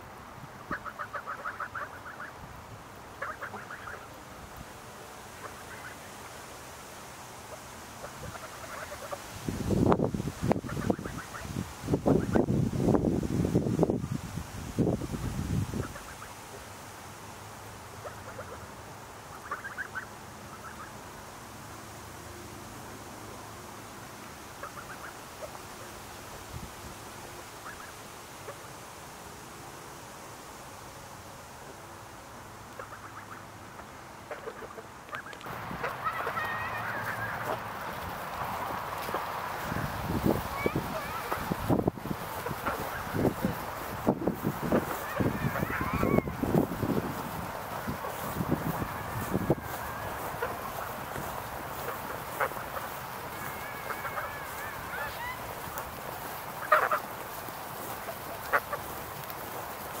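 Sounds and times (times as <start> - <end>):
geese honking: 0.6 - 2.4, 3.1 - 4.2, 5.3 - 6.1, 7.5 - 9.3, 10.6 - 11.5, 17.9 - 21.1, 24.6 - 25.9, 27.6 - 28.7, 32.7 - 60.0.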